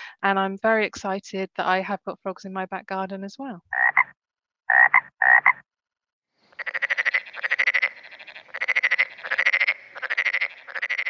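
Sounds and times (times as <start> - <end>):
frog croaking: 3.7 - 4.1, 4.7 - 5.6, 6.6 - 11.0.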